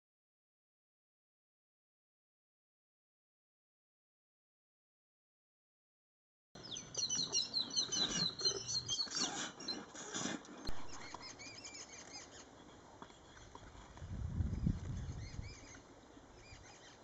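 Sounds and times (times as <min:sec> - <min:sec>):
small birds chirping: 0:06.6 - 0:17.0.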